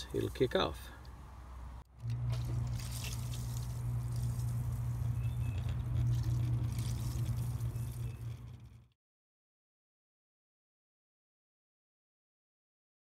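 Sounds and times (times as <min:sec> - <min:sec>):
pump humming: 0:01.9 - 0:08.9
water rushing through pipes: 0:02.0 - 0:08.9.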